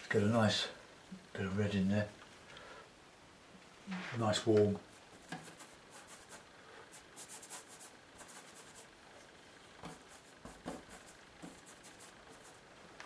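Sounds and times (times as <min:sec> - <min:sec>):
scratchy brush strokes: 0:03.9 - 0:09.0, 0:09.8 - 0:12.7.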